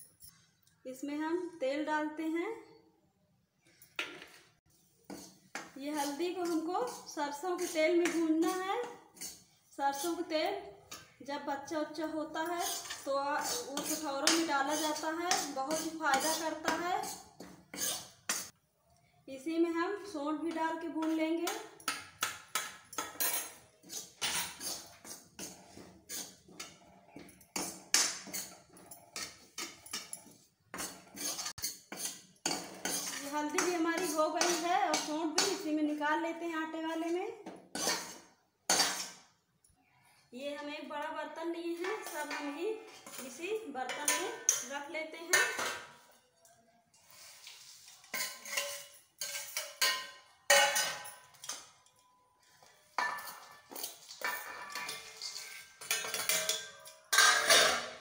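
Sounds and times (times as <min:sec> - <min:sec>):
steel spoon scraping metal pan: 0:05.1 - 0:11.1, 0:11.9 - 0:18.6, 0:21.0 - 0:35.8, 0:37.7 - 0:39.2, 0:41.8 - 0:46.2, 0:46.9 - 0:52.1, 0:53.0 - 0:58.0.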